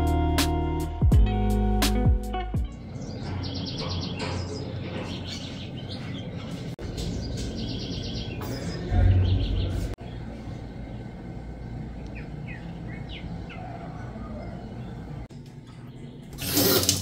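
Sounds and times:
outdoor background hum: 2.5s - 17.0s
birds chirping and trilling: 2.6s - 16.7s
low rumble: 8.9s - 13.5s.

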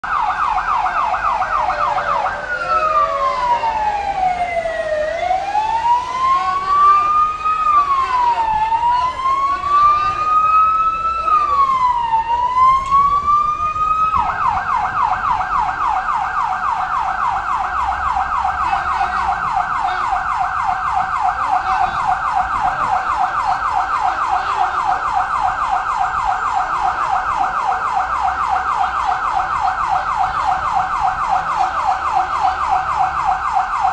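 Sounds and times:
ambulance siren wailing and yelping: 0.0s - 33.9s.

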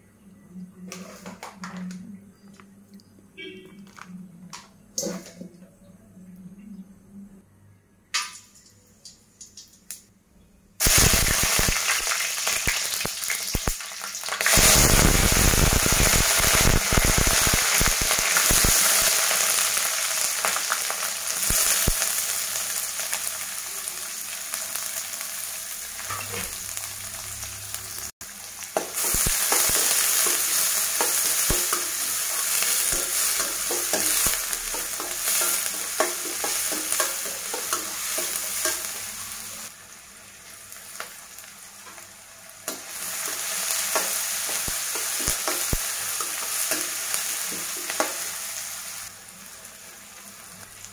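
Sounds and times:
spices crackling in oil: 10.8s - 39.8s
onions sizzling in hot oil: 10.8s - 50.9s.

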